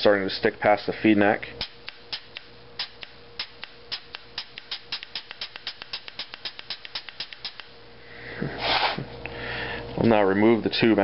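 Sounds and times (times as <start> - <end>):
faint steady air venting tone: 0.0 - 11.0
short air hiss: 8.4 - 9.8.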